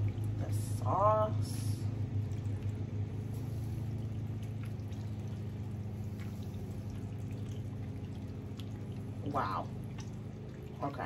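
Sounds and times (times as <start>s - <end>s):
steady low hum: 0.0s - 11.0s
sauce bubbling and sizzling: 1.9s - 10.7s.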